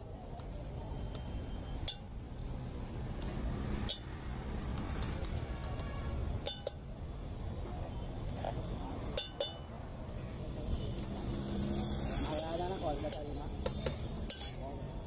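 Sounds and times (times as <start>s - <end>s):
street traffic rumble: 0.0s - 15.0s
spoon clinking against metal tins: 6.4s - 6.8s, 9.1s - 9.7s, 13.1s - 14.7s.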